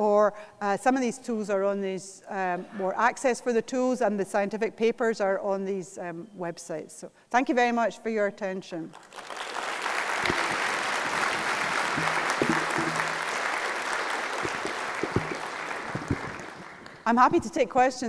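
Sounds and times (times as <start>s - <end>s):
audience applauding: 8.9s - 17.0s.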